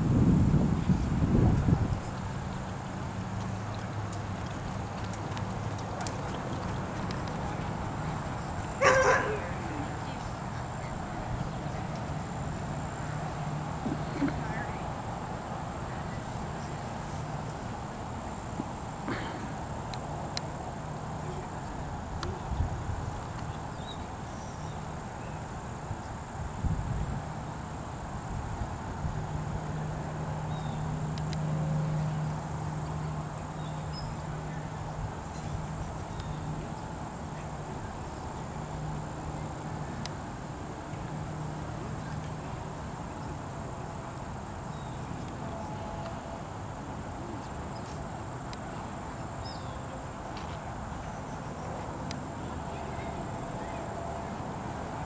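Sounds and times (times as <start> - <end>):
small ticks: 2.8 - 9.2, 31.1 - 31.5
high insect drone: 5.5 - 55.0.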